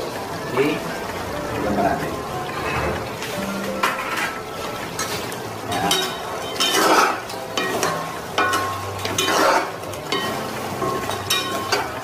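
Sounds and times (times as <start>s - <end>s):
bubbling sugar sauce: 0.0s - 12.0s
sizzling: 0.0s - 12.0s
spatulas scraping pan: 2.4s - 4.4s, 5.0s - 12.0s.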